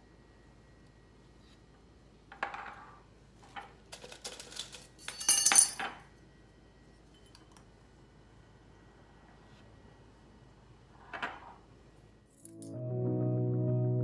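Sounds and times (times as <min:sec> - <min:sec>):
metal bars clinking on glass jars: 0:04.0 - 0:06.0.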